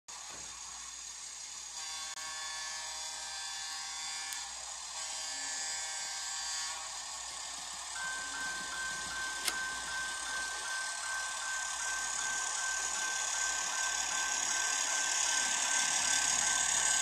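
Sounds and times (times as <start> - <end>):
whiny diesel engine sound effect: 7.0 - 17.0
intermittent high tone: 7.4 - 17.0.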